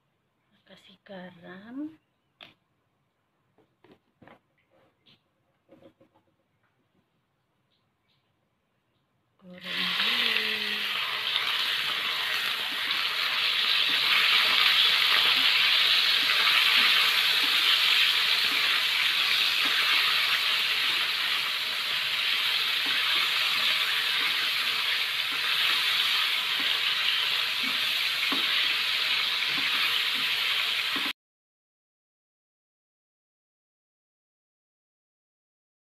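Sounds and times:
meat sizzling in oil: 9.6 - 31.1.

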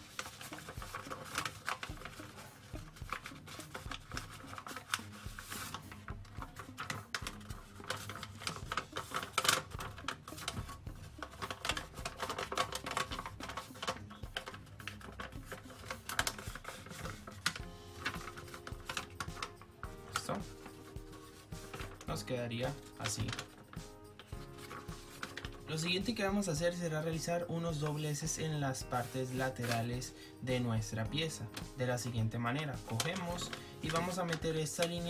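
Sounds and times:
paper crinkling: 0.0 - 30.6, 31.2 - 35.0.

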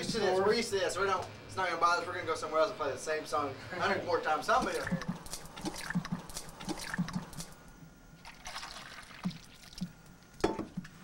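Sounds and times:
coffee pouring into cup: 8.2 - 10.8.

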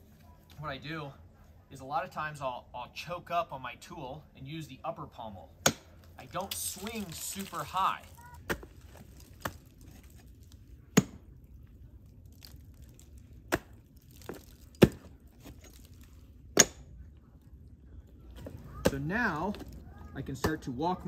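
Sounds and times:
ice axe chopping into ice: 5.6 - 7.8, 13.5 - 15.8.

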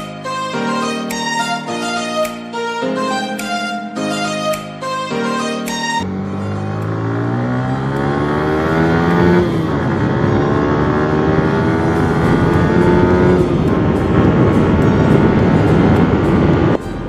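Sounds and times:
motorcycle engine accelerating: 6.0 - 16.8.

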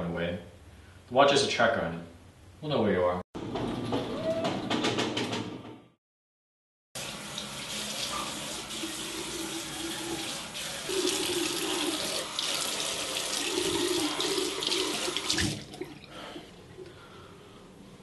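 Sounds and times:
tap running into a basin: 7.0 - 16.0.

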